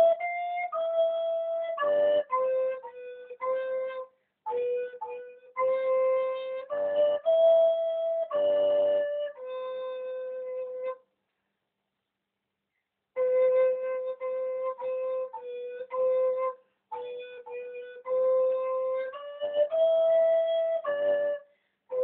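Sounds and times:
recorder playing a tune: 0.0 - 10.7.

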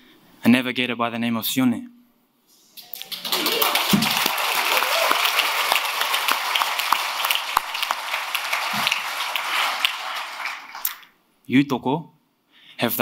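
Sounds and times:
cheering shouts: 2.8 - 10.7
audience applauding: 2.8 - 11.1.

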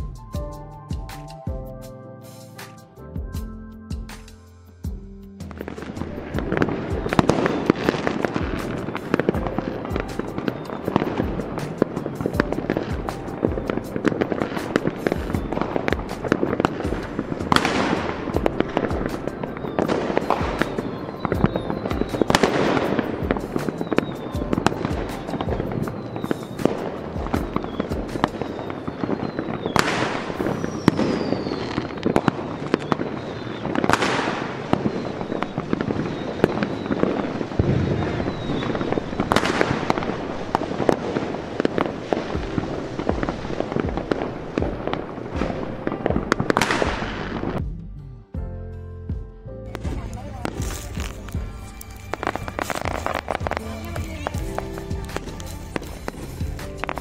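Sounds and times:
firework shell bursts and crackling: 5.4 - 47.6, 49.7 - 57.0
loud firework booms: 5.5 - 47.6, 52.2 - 57.0
falling whistles: 10.2 - 11.8, 19.1 - 39.9, 51.1 - 53.6.

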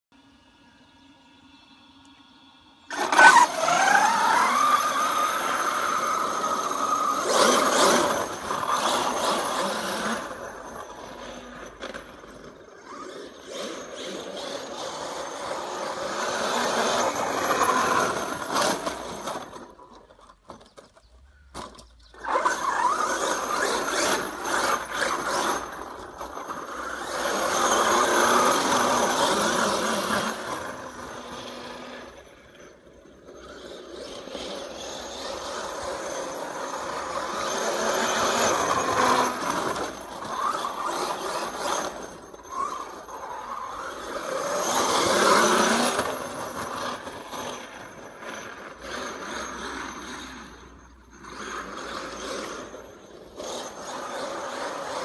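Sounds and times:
rc truck motor whining: 0.2 - 55.0.

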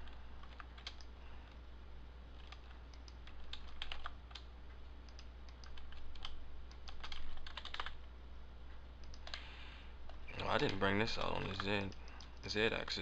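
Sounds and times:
keyboard and mouse clicks: 0.0 - 1.6, 2.4 - 4.5, 5.1 - 8.0, 9.0 - 9.5, 10.1 - 12.5.

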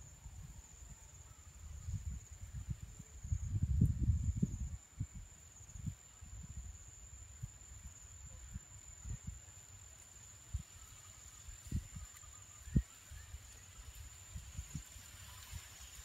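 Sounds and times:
wind buffeting microphone: 1.6 - 9.5, 11.4 - 16.0.

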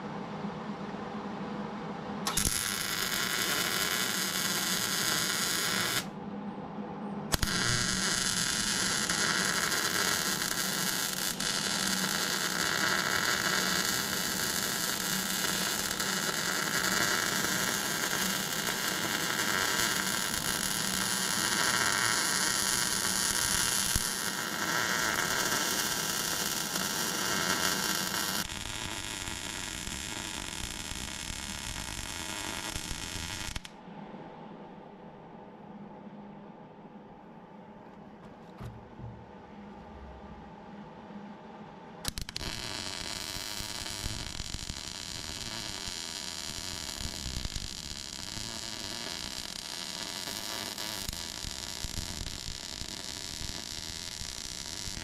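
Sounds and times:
welding arc sizzling: 2.3 - 6.1, 7.3 - 33.7, 42.1 - 55.0.

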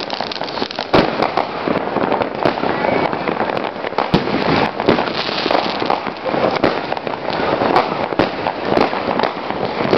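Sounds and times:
firecrackers crackling: 0.0 - 9.9
loud firework reports: 0.0 - 9.9.

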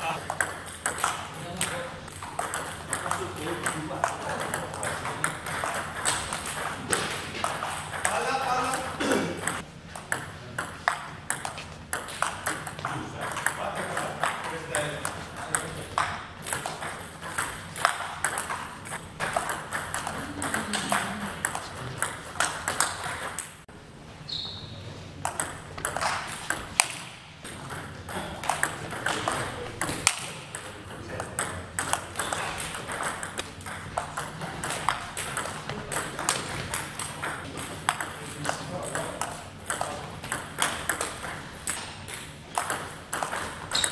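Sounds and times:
table tennis ball clicking: 0.2 - 8.2, 25.2 - 27.1, 38.9 - 43.9.

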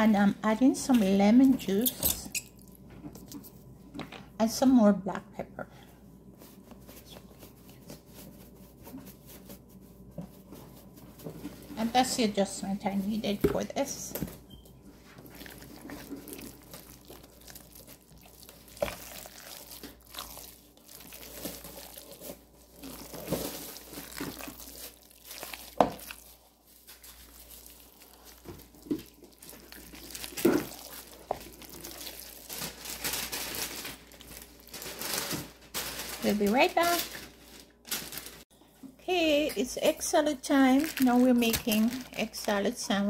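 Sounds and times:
spatula squelching in egg salad: 15.0 - 32.5.

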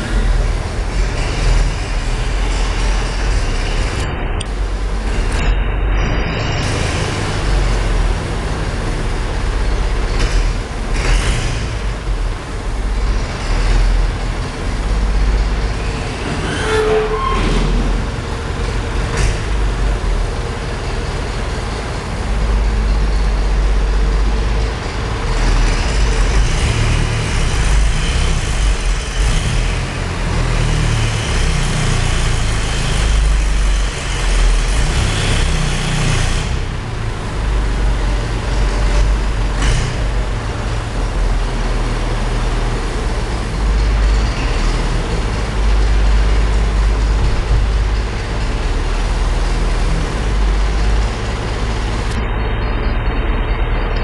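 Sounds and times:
tractor engine rumbling: 0.0 - 54.0
short rising squeal: 15.4 - 19.5.

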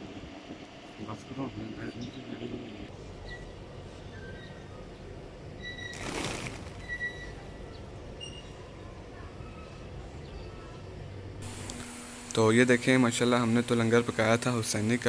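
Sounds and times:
pigeon wings fluttering: 5.9 - 6.8.

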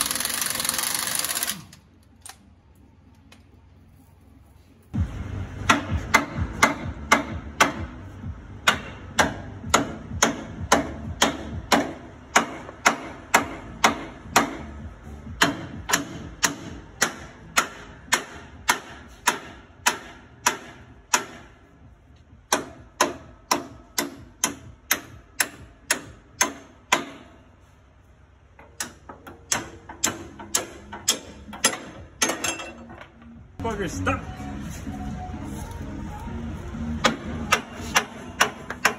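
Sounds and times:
ratchet wrench clicking: 0.0 - 2.4.

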